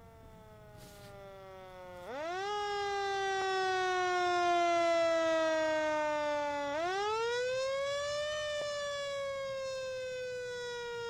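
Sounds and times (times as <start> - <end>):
fire engine siren wail: 0.0 - 11.0.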